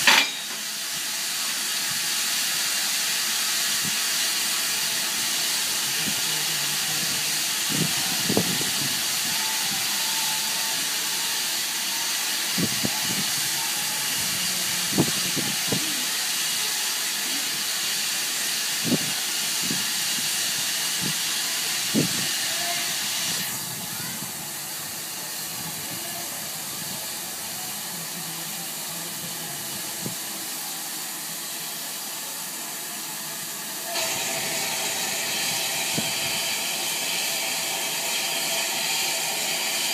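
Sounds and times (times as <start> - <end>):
steam locomotive hissing: 0.0 - 39.9.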